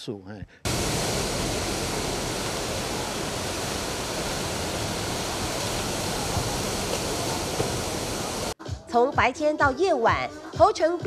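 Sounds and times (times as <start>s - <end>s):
ocean waves breaking: 0.6s - 8.6s.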